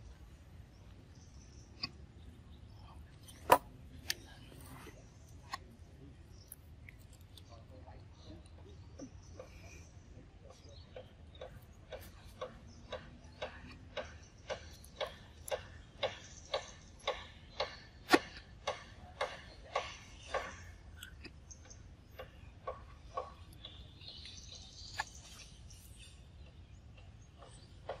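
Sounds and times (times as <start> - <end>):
monkey chewing with smacking clicks: 6.3 - 8.6, 11.0 - 28.0.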